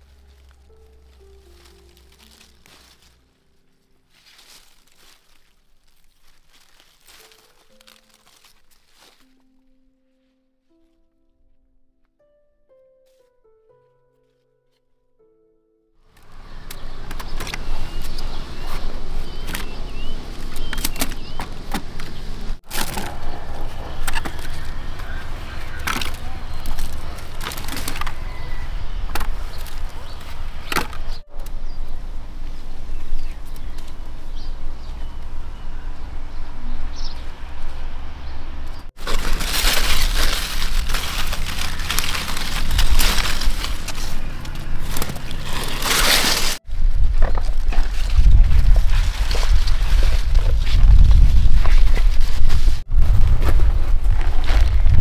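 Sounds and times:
plant stems snapping: 0.0 - 3.2, 4.2 - 9.4, 20.4 - 28.2, 39.0 - 46.6
leaves rustling: 0.0 - 11.0, 16.1 - 55.0.

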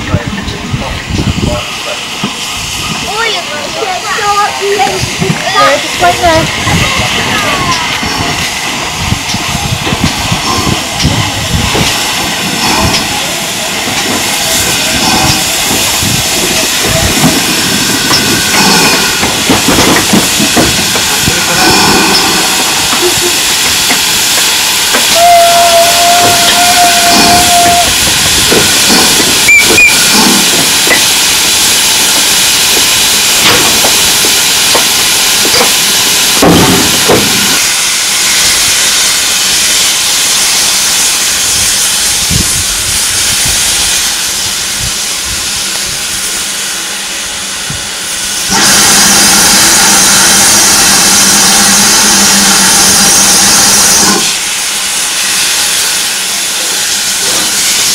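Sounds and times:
steam locomotive hissing: 0.0 - 57.9
steam locomotive whistle: 24.9 - 28.6, 29.4 - 30.2, 48.5 - 56.2.

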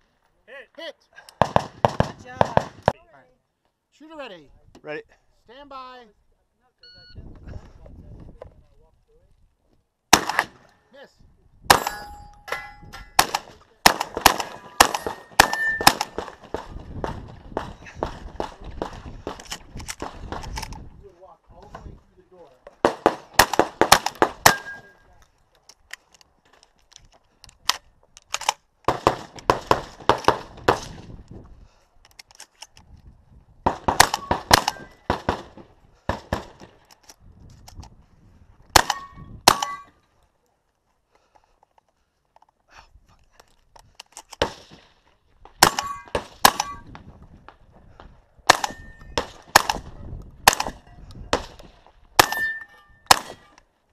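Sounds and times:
shotgun shots: 1.4 - 2.9, 10.1 - 10.6, 11.7 - 19.4, 22.8 - 24.9, 28.9 - 31.0, 33.6 - 36.7, 38.8 - 39.9, 44.4 - 44.9, 45.6 - 46.9, 48.4 - 53.5
metallic ring of steel targets: 11.7 - 13.2, 14.8 - 16.1, 24.5 - 25.0, 38.9 - 40.0, 45.6 - 46.9, 48.6 - 49.2, 52.2 - 53.2
steel targets ringing: 11.7 - 13.2, 14.8 - 15.9, 52.2 - 53.1.

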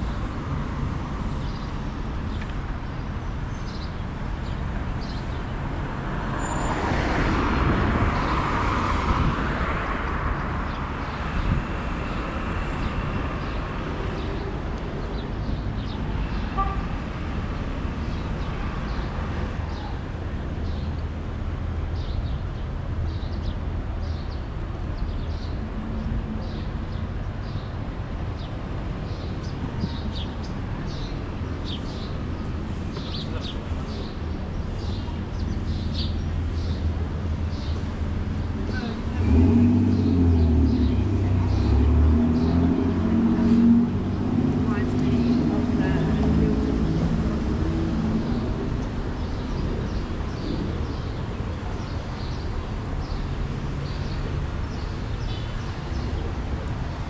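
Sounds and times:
traffic rumble: 0.0 - 57.0
vehicle passing close: 38.7 - 49.0.

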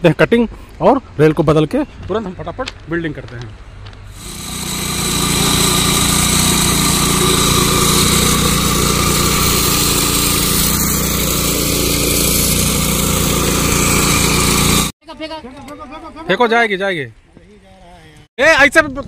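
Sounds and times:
rail cutter grinding steel: 4.2 - 15.0.

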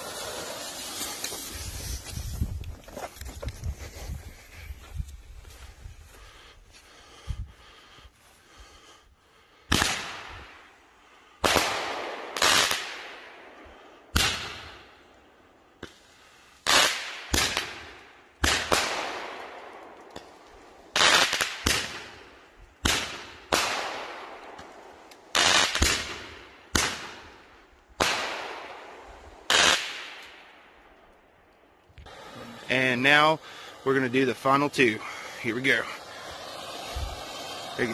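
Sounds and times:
roman candle fireworks bangs: 0.0 - 2.3, 9.7 - 10.7, 11.4 - 13.4, 14.1 - 15.0, 16.7 - 30.6.

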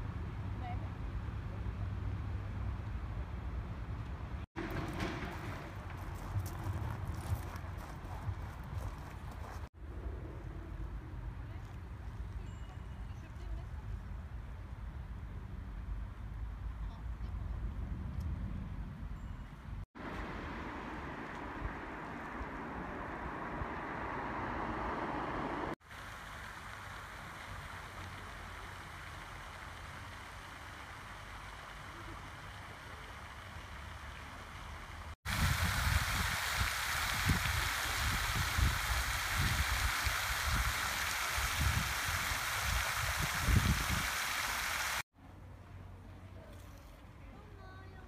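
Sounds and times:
outdoor rushing noise: 4.3 - 10.9, 20.0 - 26.0
fountain water splashing: 25.8 - 45.0.

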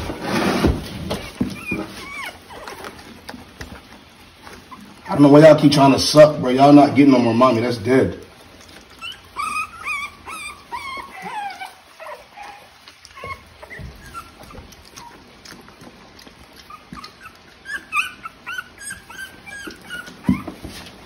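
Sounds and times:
puppies whimpering and squeaking: 0.0 - 21.0.

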